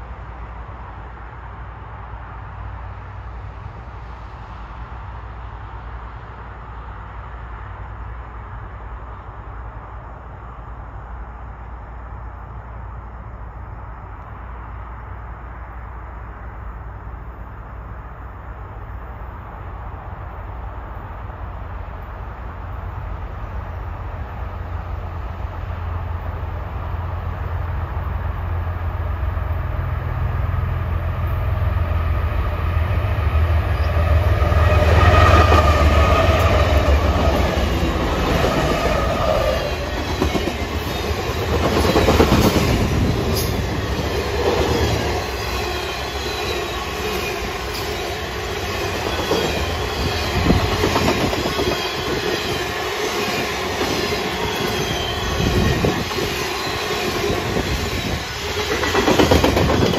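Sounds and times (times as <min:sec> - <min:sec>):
diesel locomotive drone: 0:00.0 - 0:59.9
train wheels clattering: 0:33.8 - 0:59.9.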